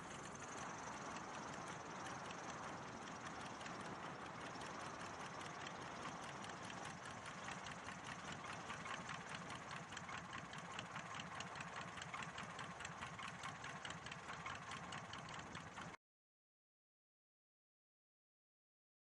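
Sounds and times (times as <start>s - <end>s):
light aircraft engine idling: 0.0s - 16.0s.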